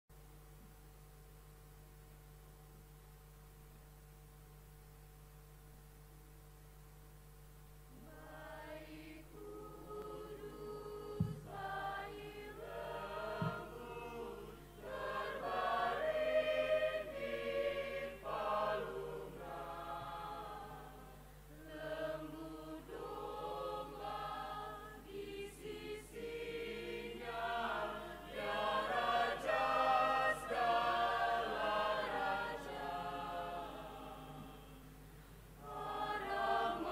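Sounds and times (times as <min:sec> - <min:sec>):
faint steady hum: 0:00.1 - 0:36.9
mixed choir singing: 0:08.0 - 0:34.9, 0:35.6 - 0:36.9
low thumps: 0:13.3 - 0:14.0.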